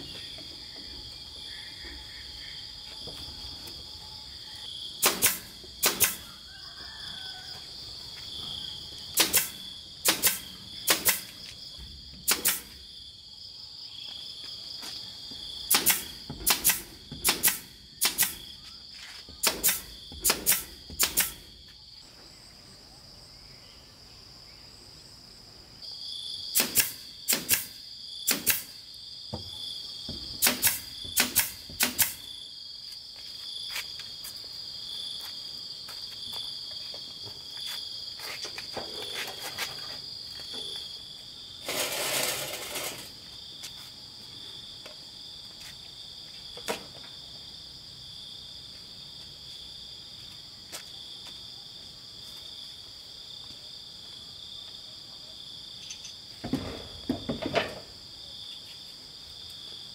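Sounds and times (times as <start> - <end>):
nail gun firing into wood: 5.0 - 6.3, 9.2 - 11.4, 12.2 - 12.8, 15.7 - 18.5, 19.4 - 21.5, 26.5 - 28.8, 30.3 - 32.3.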